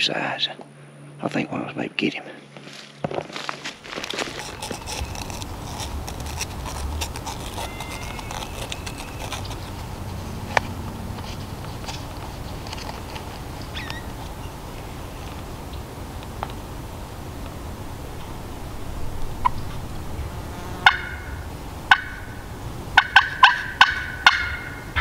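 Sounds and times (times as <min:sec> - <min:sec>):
friction call scratching: 0:03.6 - 0:15.5
low wind rumble: 0:03.7 - 0:25.0.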